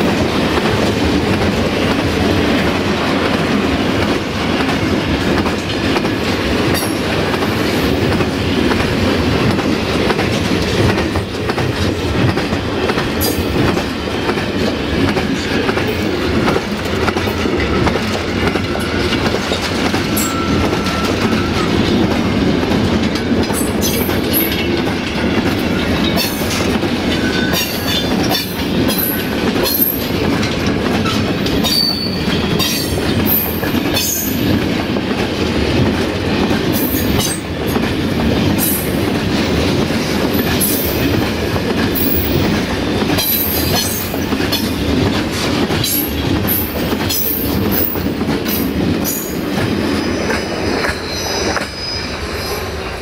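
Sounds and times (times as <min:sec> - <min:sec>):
train wheels rumbling on rail: 0:00.0 - 0:53.0
high wheel squeals: 0:50.0 - 0:52.8.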